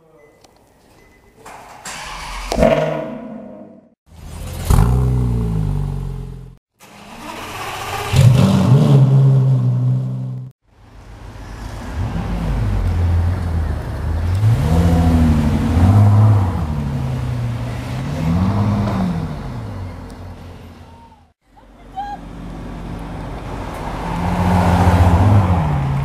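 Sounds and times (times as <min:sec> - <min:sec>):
car engine accelerating: 0:11.4 - 0:20.6.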